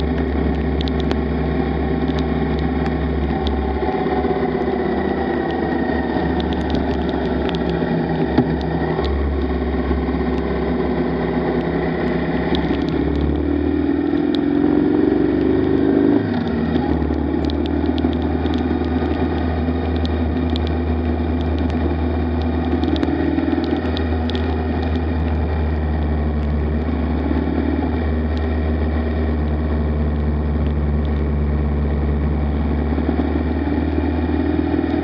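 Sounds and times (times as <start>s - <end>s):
motorcycle engine running: 0.0s - 35.0s
tyres on wet road: 0.0s - 35.0s
faint ticks: 16.4s - 25.4s.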